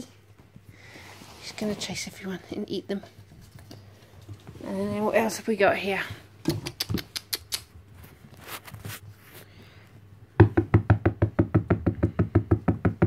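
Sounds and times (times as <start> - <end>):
fingers tapping on hard surface: 10.4 - 13.0.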